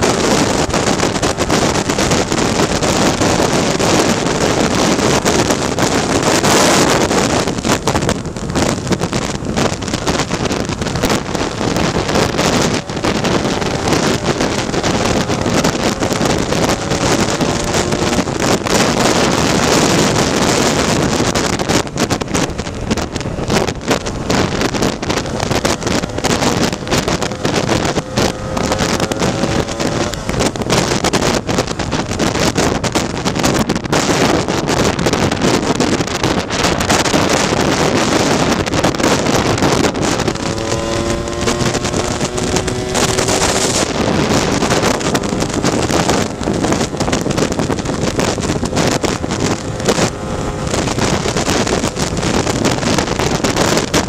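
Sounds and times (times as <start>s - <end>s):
scooter two-stroke engine: 0.0s - 54.0s
wind buffeting microphone: 0.0s - 54.0s.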